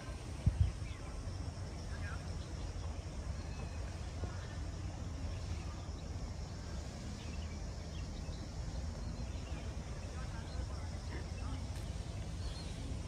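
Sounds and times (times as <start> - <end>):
faint bird chirps: 0.0 - 13.0
steady low rumble: 0.0 - 13.0.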